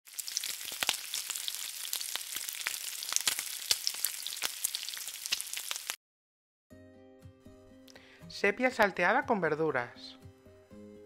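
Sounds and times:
food sizzling in hot oil: 0.0 - 6.0.

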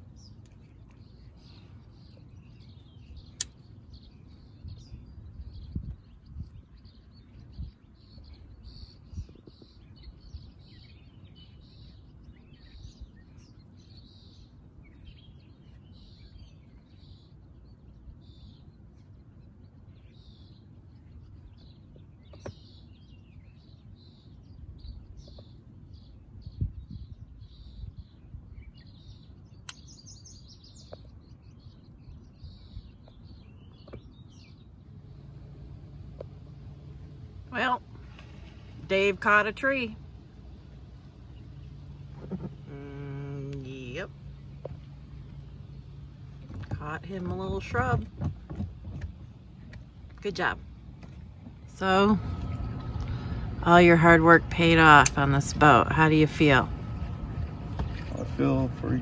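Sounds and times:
songbirds chirping: 0.0 - 59.0
low rumble: 31.3 - 59.0.

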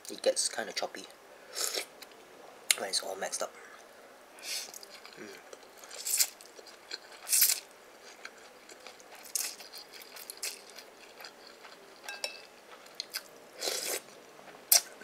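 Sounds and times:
person chewing noodles: 4.5 - 15.0
utensil clinking on china bowl: 12.0 - 12.5.

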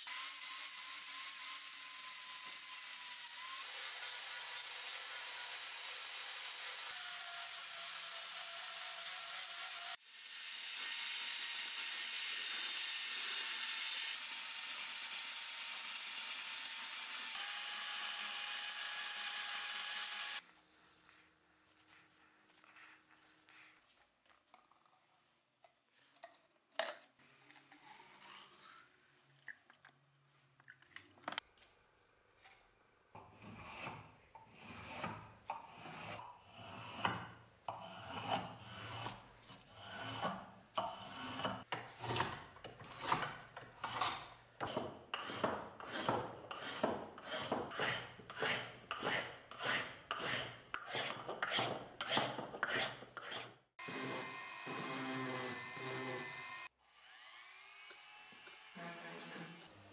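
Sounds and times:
hand file rasping on wood: 33.4 - 56.2.

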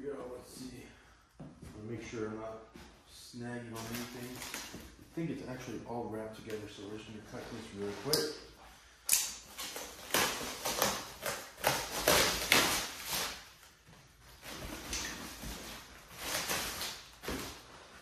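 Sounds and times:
plastic wrap crinkling: 9.5 - 17.7.

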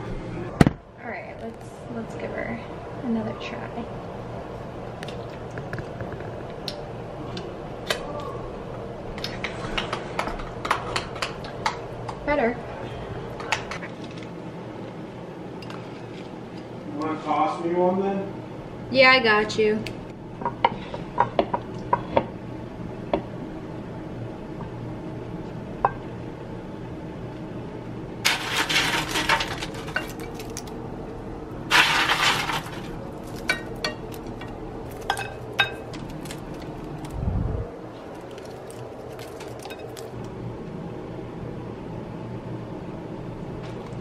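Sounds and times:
croutons rattling and crunching: 28.2 - 30.9, 31.7 - 37.2, 37.9 - 40.3
dishes clinking: 31.7 - 36.7.

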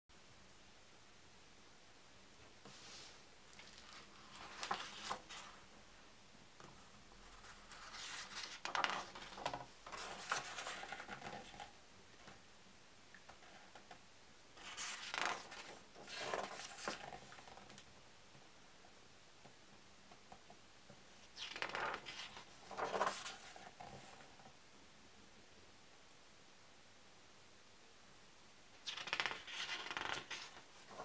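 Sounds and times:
book pages turning: 3.6 - 5.6, 7.4 - 11.7, 14.6 - 17.5, 21.4 - 24.2, 28.9 - 31.0.

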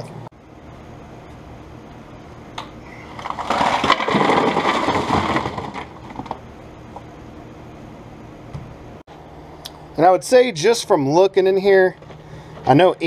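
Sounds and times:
ice cubes and fish clattering into sink: 3.1 - 6.4.

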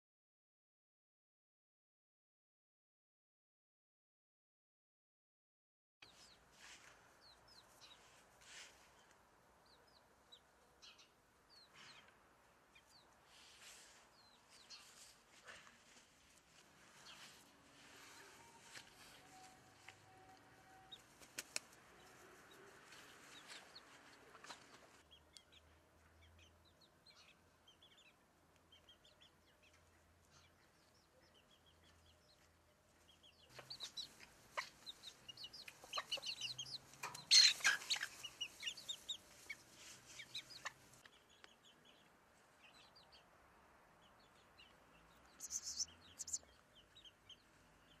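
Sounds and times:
chickens clucking: 18.1 - 25.1, 33.5 - 41.2, 45.2 - 46.6.

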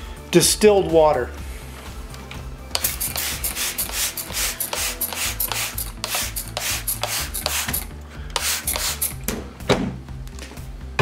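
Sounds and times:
stiff brush scrubbing: 2.8 - 7.8.

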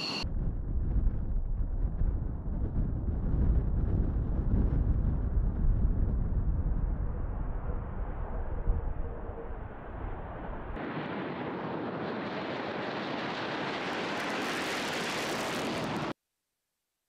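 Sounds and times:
jet engine roar: 0.0 - 0.2, 6.4 - 16.2.

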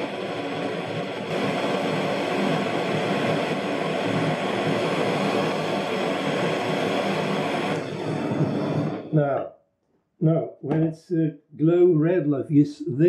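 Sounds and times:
gas torch flame rushing: 0.0 - 9.4.

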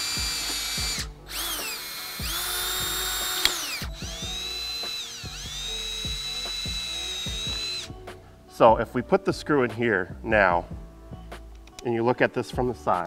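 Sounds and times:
cordless drill drilling metal: 0.0 - 8.0.

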